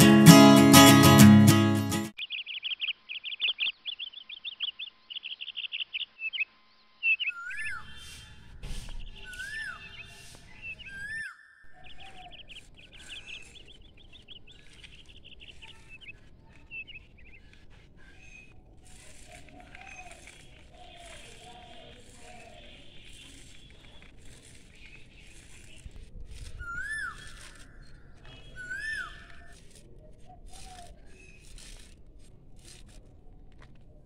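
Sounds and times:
small birds chirping: 2.2 - 34.0
whistled bird notes: 7.0 - 18.5, 26.5 - 29.6.

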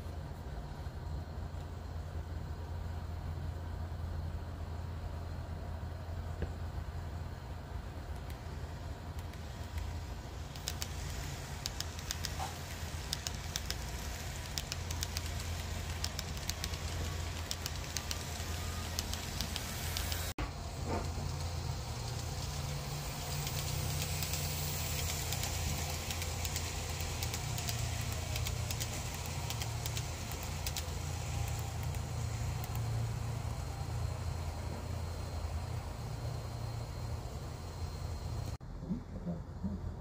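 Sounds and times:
model train motor hum: 6.7 - 38.6
wheels clicking over track joints: 9.2 - 33.4.

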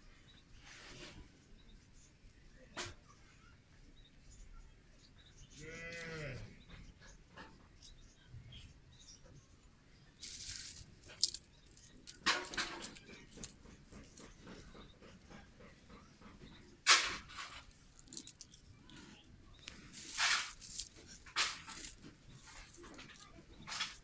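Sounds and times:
dry twigs and straw rustling: 10.1 - 15.6, 16.2 - 24.0.

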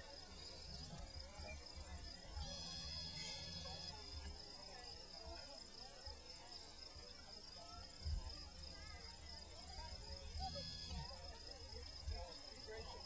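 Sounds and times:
high-pitched insect chorus: 0.3 - 5.2, 7.8 - 13.0.

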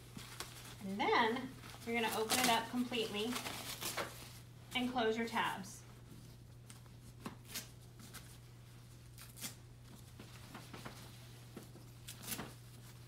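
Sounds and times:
low steady hum: 0.0 - 13.0
rustling and crinkling of brief: 9.8 - 13.0.

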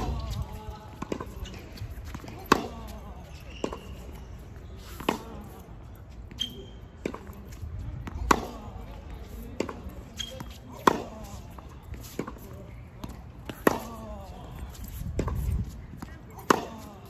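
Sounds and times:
tennis ball bouncing: 0.0 - 4.1, 8.0 - 8.8, 9.5 - 12.4, 13.0 - 14.3, 15.2 - 17.0
tennis racket hitting ball: 2.2 - 2.9, 10.7 - 11.2, 16.4 - 17.0.

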